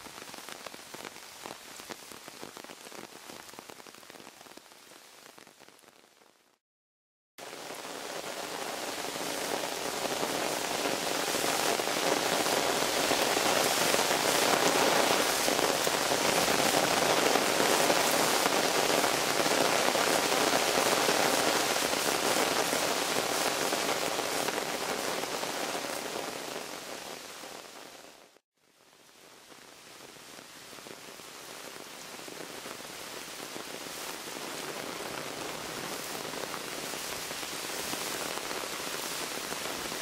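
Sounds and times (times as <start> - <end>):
water rushing over gravel: 7.4 - 27.7, 31.0 - 40.0.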